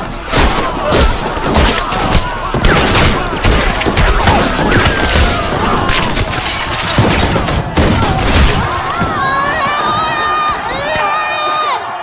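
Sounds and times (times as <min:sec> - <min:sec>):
people screaming and wailing: 0:00.0 - 0:12.0
rifle fire volleys: 0:00.2 - 0:09.0.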